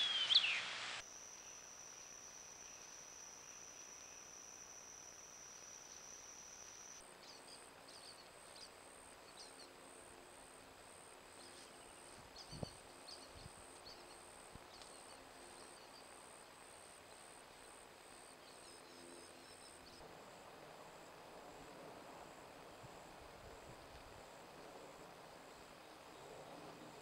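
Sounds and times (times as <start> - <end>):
pulsing insect trill: 0.0 - 9.5
faint bird chirps: 0.0 - 9.7.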